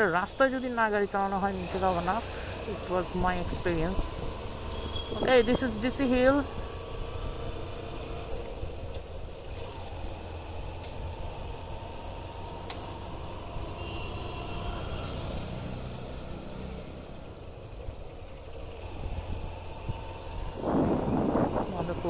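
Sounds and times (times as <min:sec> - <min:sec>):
motorcycle engine rumble: 0:00.0 - 0:22.0.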